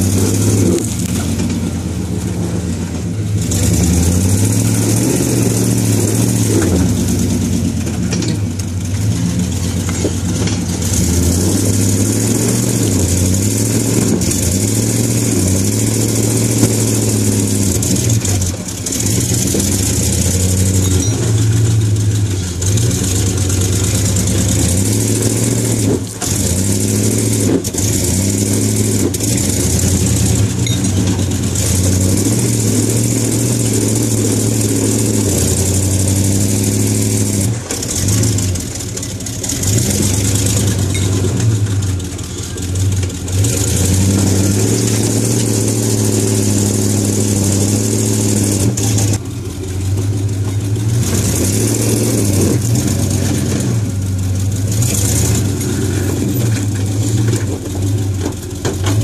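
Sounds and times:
truck engine revving under load: 0.0s - 59.0s.

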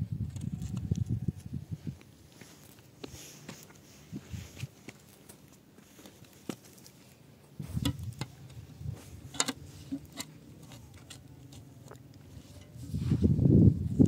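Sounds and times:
soil and stones scraping: 2.0s - 13.4s.

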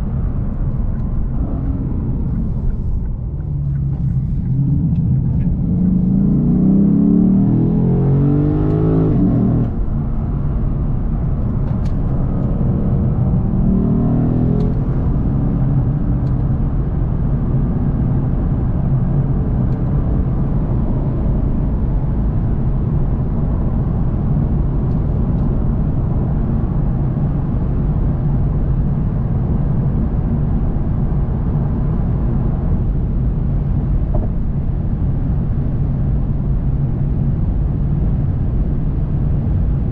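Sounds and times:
road and tyre noise: 0.0s - 39.9s
car engine revving: 0.1s - 16.5s.

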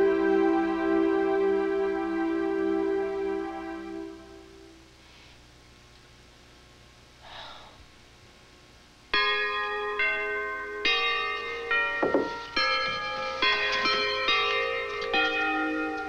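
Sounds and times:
faint breathy sound: 7.2s - 8.0s
bells ringing: 9.1s - 16.0s.

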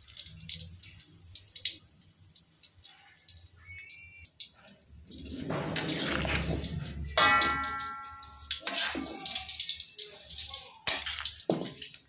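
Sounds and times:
metal utensil scraping a pan: 5.1s - 11.9s.

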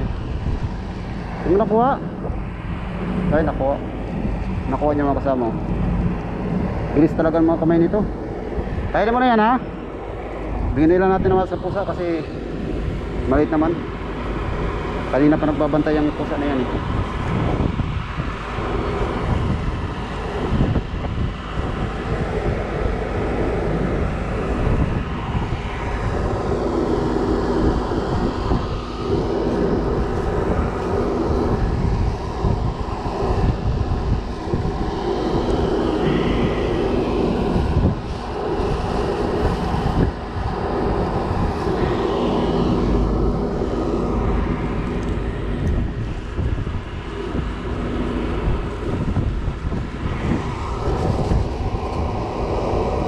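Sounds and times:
held hum: 0.0s - 53.0s
low engine drone: 0.0s - 53.0s.

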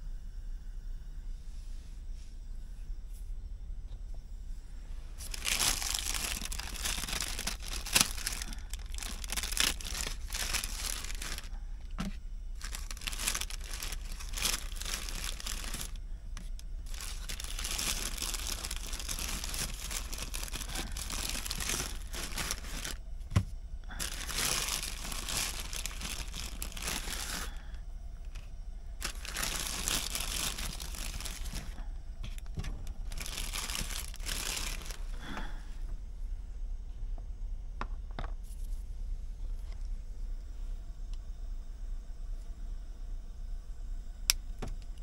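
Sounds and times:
packaging crinkling: 5.2s - 23.0s, 23.9s - 35.4s.

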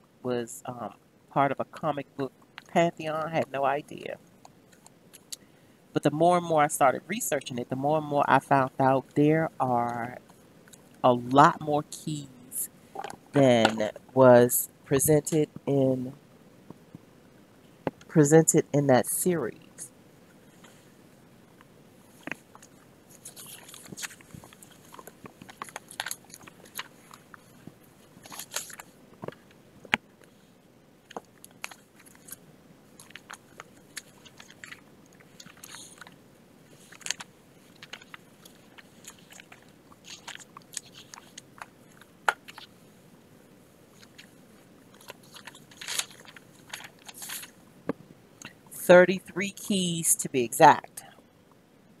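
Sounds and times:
crinkling and clicks being handled: 21.6s - 30.4s, 31.0s - 42.8s, 43.9s - 48.7s.

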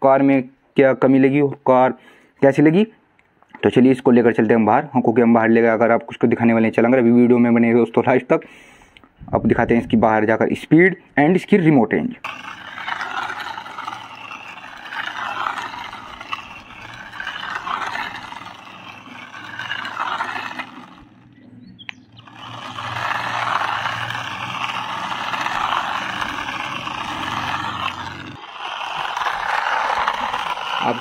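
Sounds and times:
plastic wheels scraping grit: 12.2s - 31.0s
toy car motor whirring: 12.2s - 31.0s.

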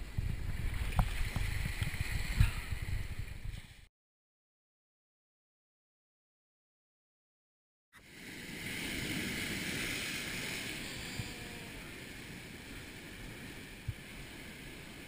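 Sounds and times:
wind on microphone: 0.0s - 3.9s, 8.2s - 15.0s
surf washing over rocky shore: 8.0s - 15.0s.

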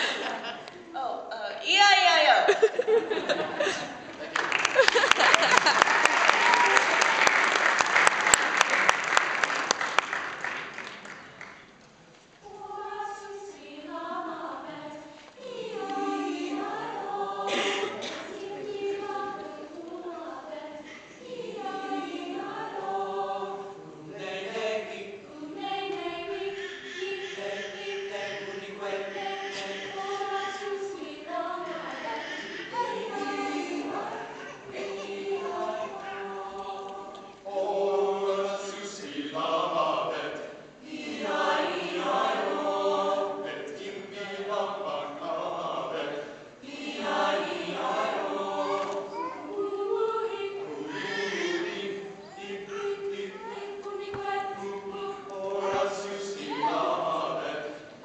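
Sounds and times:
mixed choir singing: 0.0s - 0.8s, 12.4s - 58.0s
applause: 4.2s - 11.7s.

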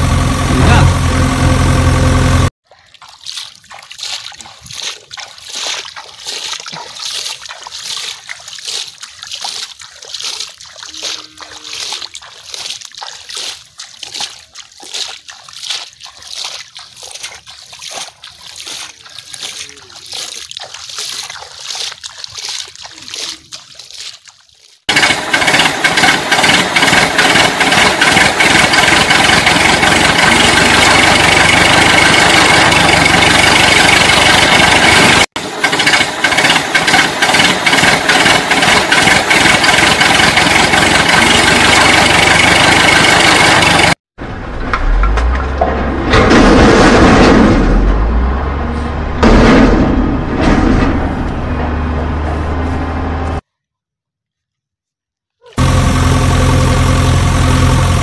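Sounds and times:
engine idling with whine: 0.0s - 2.5s, 24.9s - 45.8s, 55.6s - 58.0s
water splashing and trickling: 2.6s - 25.3s, 26.0s - 35.4s, 36.1s - 45.9s.

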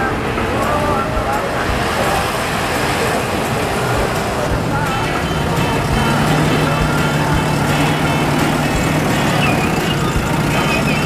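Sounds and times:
diesel engine humming: 0.0s - 11.0s.

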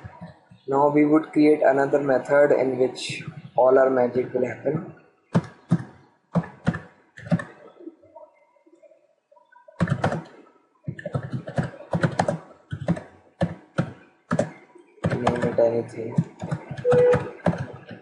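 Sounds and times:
computer keyboard typing: 9.8s - 18.0s.

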